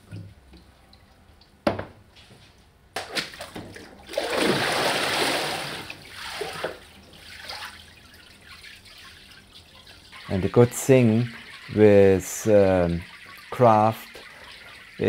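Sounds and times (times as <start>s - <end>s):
water sloshing and splashing: 3.0s - 15.0s.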